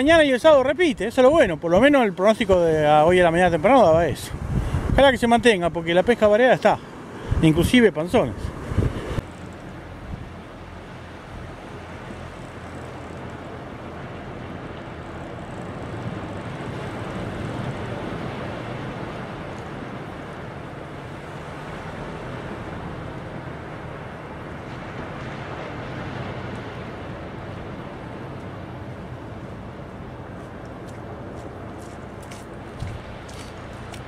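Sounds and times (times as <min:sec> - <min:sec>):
wind rumbling on microphone: 0:00.0 - 0:34.0
surf breaking on beach: 0:15.7 - 0:34.0.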